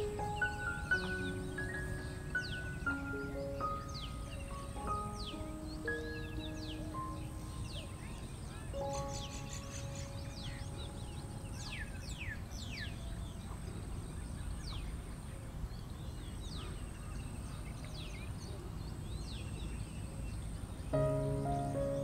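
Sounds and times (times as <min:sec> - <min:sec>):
small birds whistling: 0:00.0 - 0:13.9.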